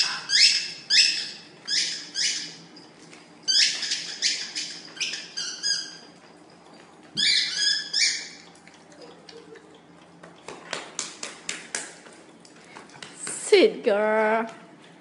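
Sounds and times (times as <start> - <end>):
puppies squealing and yelping: 0.0 - 6.2, 7.2 - 8.6.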